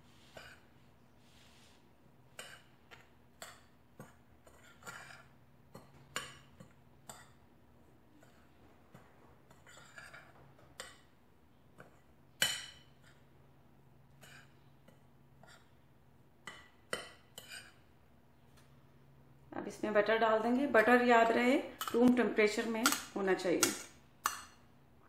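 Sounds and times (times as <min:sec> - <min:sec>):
spoon scraping mixing bowl: 0:00.0 - 0:11.1, 0:14.1 - 0:18.0, 0:20.1 - 0:24.7.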